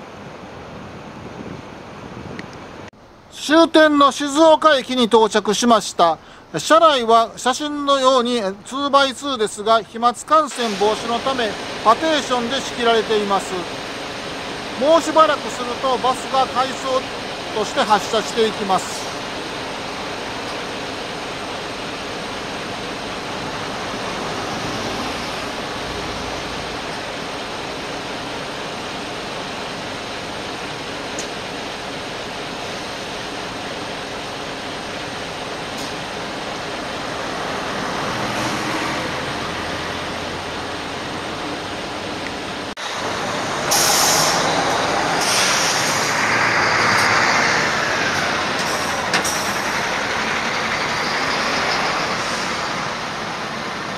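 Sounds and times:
diesel engine idling: 0:06.2 - 0:53.9
air brake hisses: 0:43.7 - 0:44.5, 0:45.1 - 0:46.3, 0:48.6 - 0:49.7.

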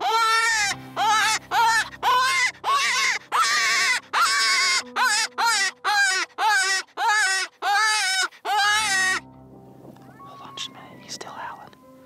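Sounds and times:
predator call prey distress cries: 0:00.0 - 0:09.2.

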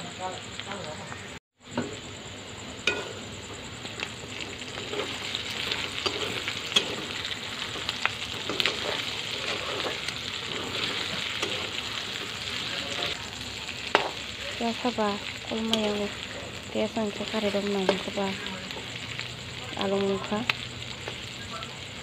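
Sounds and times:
food sizzling in oil: 0:00.0 - 0:22.0
metal spatula scraping pan: 0:04.7 - 0:13.2.

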